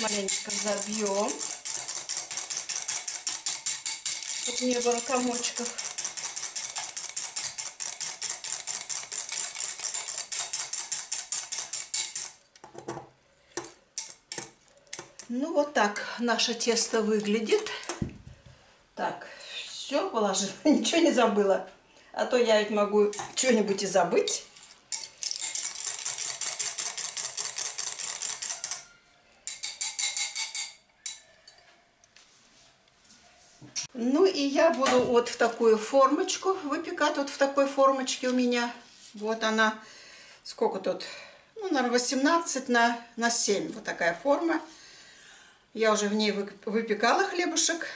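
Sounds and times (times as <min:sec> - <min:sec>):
whisk clicking against glass: 0:00.0 - 0:12.4, 0:24.9 - 0:28.9.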